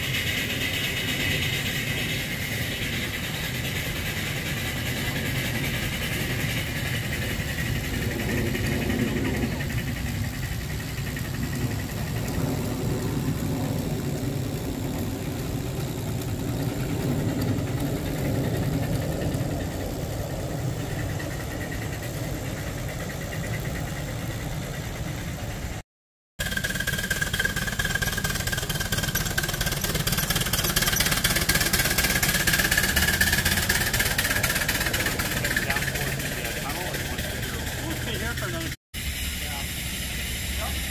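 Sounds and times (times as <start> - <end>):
hiss: 0.0 - 14.1, 26.4 - 40.9
scale train rumbling past: 0.0 - 25.8, 26.4 - 40.9
steady high whine: 0.0 - 25.8, 26.4 - 40.9.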